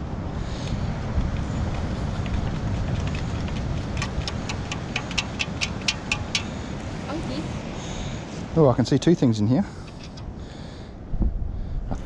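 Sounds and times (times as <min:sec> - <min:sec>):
steady low rumble: 0:00.0 - 0:12.0
sand shaken through metal scoop: 0:01.0 - 0:06.3.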